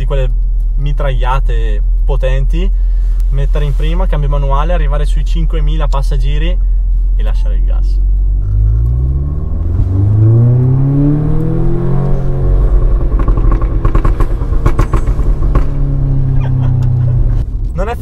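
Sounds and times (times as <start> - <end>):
exhaust pops and crackles: 0.0 - 18.0
car engine revving: 8.0 - 18.0.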